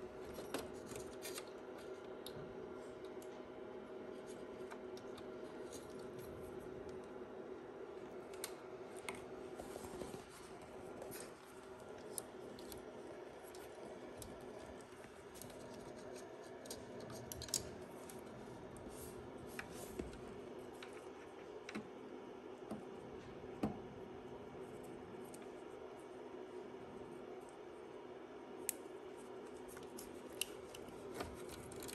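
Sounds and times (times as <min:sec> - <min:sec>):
faint steady hum: 0:00.0 - 0:31.9
clicks of handling wiring: 0:11.0 - 0:18.8, 0:29.5 - 0:31.9.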